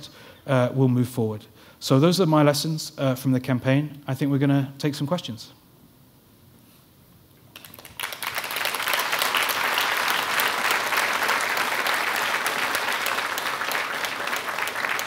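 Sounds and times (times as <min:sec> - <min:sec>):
audience applause: 0:07.6 - 0:15.0.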